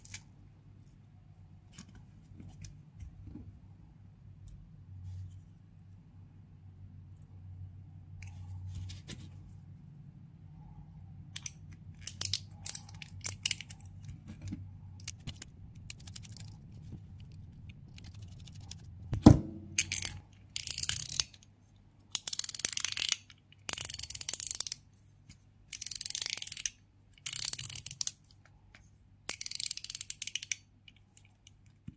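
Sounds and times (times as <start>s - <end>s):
small metal clicks: 11.3s - 18.9s
sharp knock: 19.2s - 19.8s.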